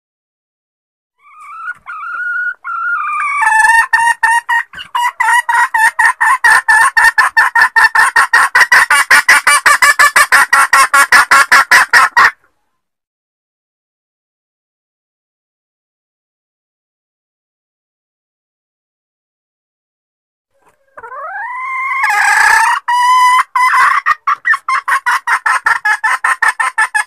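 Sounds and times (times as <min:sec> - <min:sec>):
hen clucking call: 0:01.2 - 0:12.4, 0:20.6 - 0:27.0.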